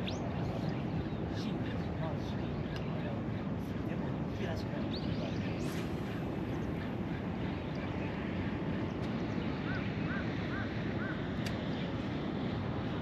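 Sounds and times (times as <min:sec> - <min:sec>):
bird calls: 0:04.8 - 0:11.8.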